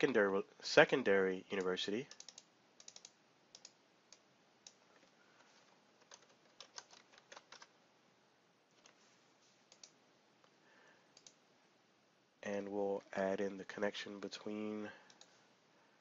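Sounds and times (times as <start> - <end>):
computer keyboard clicking: 2.1 - 5.1, 6.0 - 7.7, 11.2 - 11.4.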